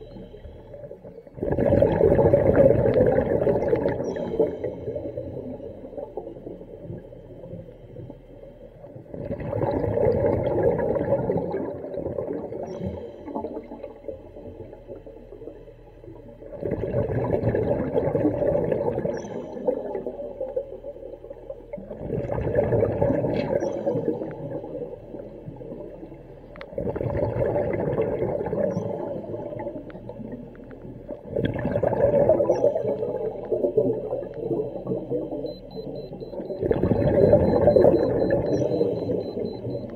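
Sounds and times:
bubbly underwater exhalations: 1.4s - 4.5s, 9.1s - 12.8s, 16.5s - 19.2s, 21.7s - 24.2s, 26.7s - 29.8s, 31.2s - 35.1s, 36.2s - 39.8s.

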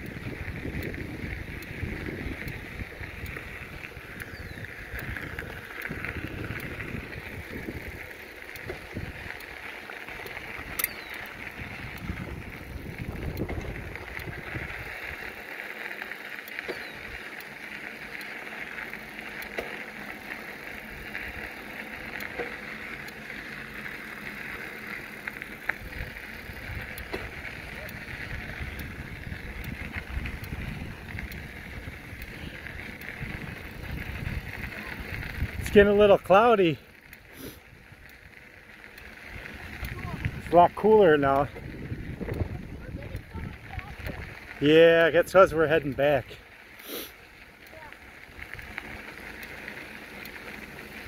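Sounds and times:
wind rumbling on microphone: 0.0s - 15.4s, 25.6s - 36.0s, 39.0s - 44.6s
bicycle tyres rolling: 0.0s - 51.0s.

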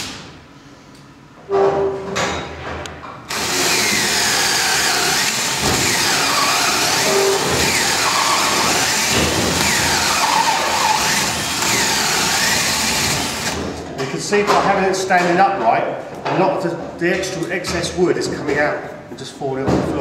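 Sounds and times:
cordless drill boring into wood: 3.3s - 13.6s.

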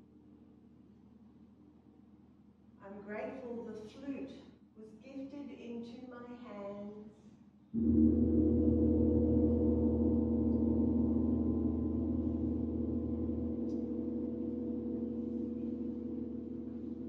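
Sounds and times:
gong ringing: 7.8s - 17.0s.

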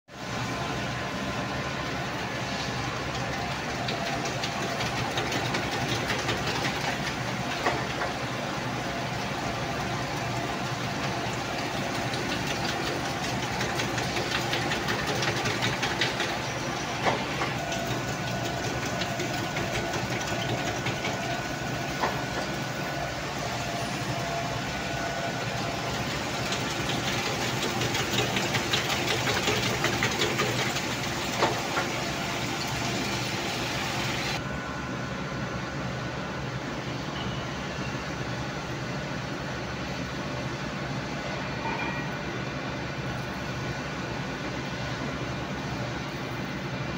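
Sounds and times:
gear grinding machine: 10.0s - 24.5s, 25.3s - 34.4s.

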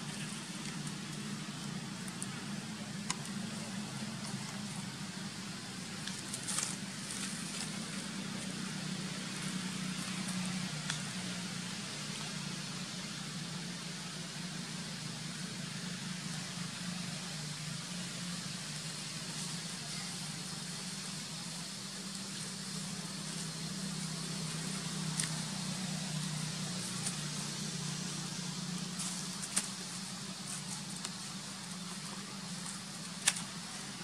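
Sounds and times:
faint crackles: 0.0s - 11.3s, 22.0s - 34.0s
steady low hum: 0.0s - 34.0s.

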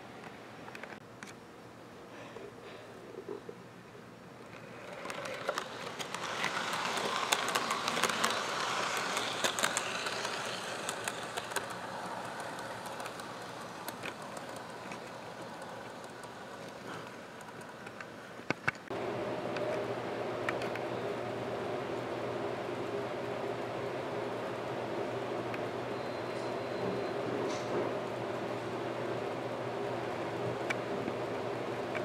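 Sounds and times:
model train wheels clattering: 4.5s - 18.8s.

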